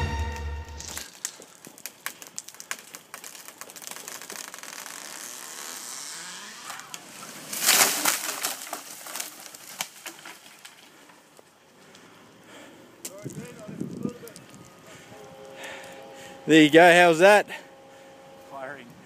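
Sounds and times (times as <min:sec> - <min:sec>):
tree crashing to ground: 0:00.7 - 0:11.0
branches cracking: 0:00.7 - 0:12.1, 0:13.0 - 0:16.1
tree wood cracking and snapping: 0:00.8 - 0:12.0, 0:13.0 - 0:16.0.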